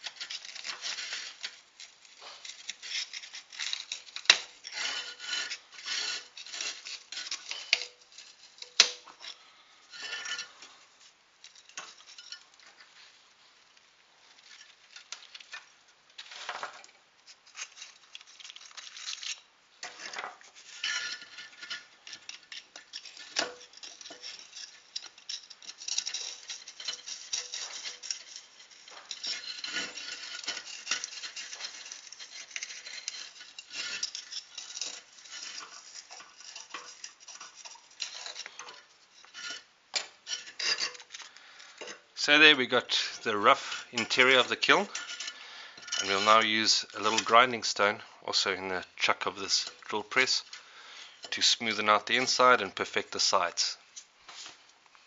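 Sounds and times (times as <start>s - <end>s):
brick cores snapping: 0.0s - 9.4s, 14.5s - 42.1s
brick scraping and crumbling: 0.0s - 10.8s, 14.3s - 53.6s.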